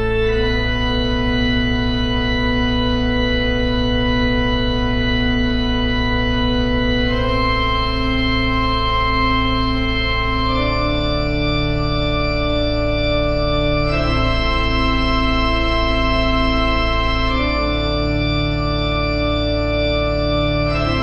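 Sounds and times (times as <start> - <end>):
slow instrumental chords: 13.8 - 21.0.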